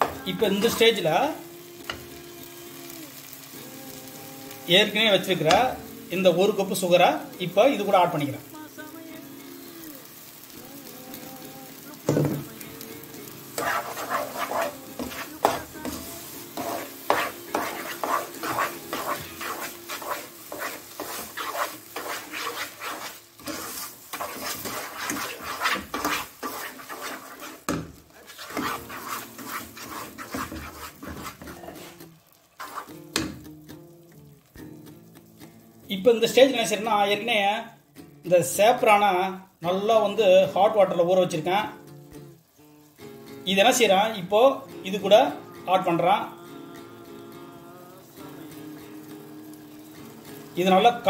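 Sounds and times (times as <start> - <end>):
wooden spatula scraping a pan: 0.0 - 1.1, 13.5 - 33.3.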